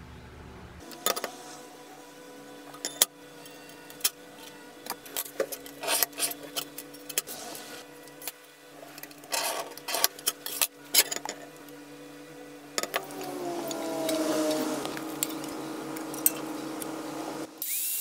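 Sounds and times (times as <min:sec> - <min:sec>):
steel scribe scraping steel: 0:00.8 - 0:17.5.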